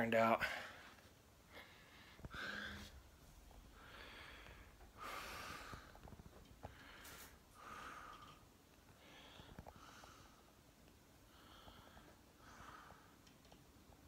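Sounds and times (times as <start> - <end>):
person breathing through nose: 3.8 - 10.5
faint clicks: 13.2 - 13.7.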